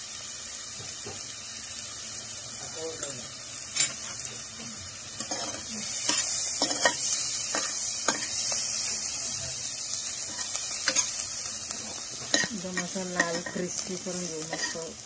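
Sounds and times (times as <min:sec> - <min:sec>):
garlic sizzling in hot oil: 0:00.0 - 0:15.0.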